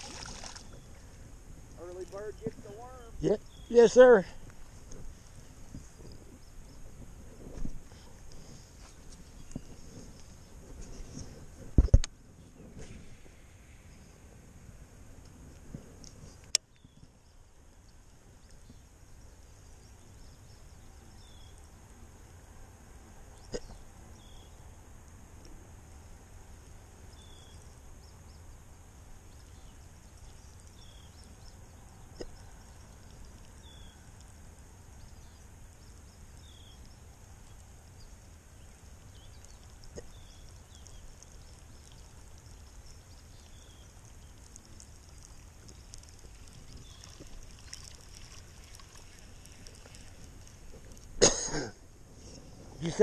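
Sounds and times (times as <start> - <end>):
faint low hum: 0.0 - 53.0.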